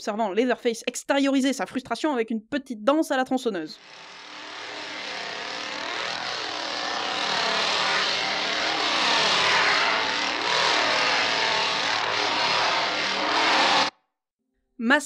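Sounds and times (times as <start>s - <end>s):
chainsaw engine revving: 3.8s - 13.9s.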